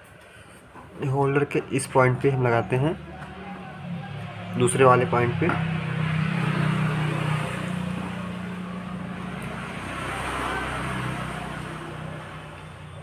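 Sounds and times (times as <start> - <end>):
engine running: 3.0 - 13.0.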